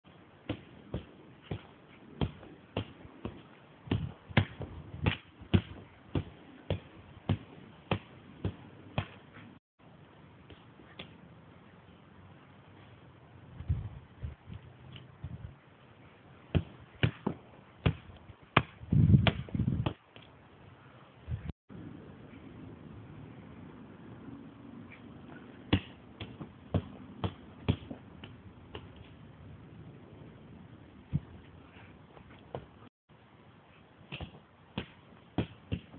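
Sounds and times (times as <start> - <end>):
foot kicking football: 16.5 - 20.0, 25.7 - 29.1, 31.1 - 31.5.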